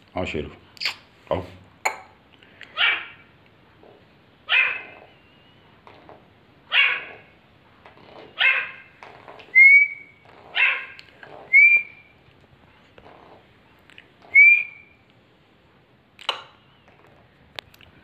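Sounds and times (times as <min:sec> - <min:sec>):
call whistle tone: 0:09.5 - 0:10.2, 0:11.5 - 0:12.2, 0:14.3 - 0:15.0.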